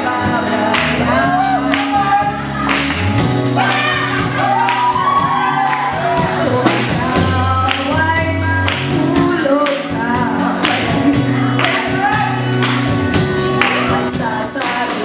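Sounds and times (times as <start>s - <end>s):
woman singing: 0.0s - 2.9s, 5.9s - 12.1s, 13.6s - 15.0s
drum kit beat: 0.0s - 15.0s
electric bass: 0.0s - 15.0s.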